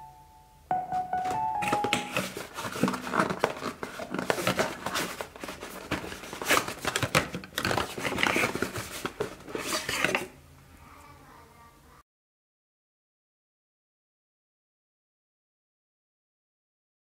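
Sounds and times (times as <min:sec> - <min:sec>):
cardboard packaging crinkling: 0:01.2 - 0:10.3.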